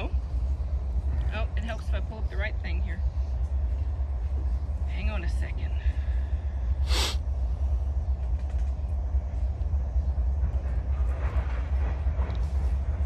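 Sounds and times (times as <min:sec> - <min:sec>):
low rumble: 0:00.0 - 0:13.0
short hiss: 0:06.8 - 0:07.2.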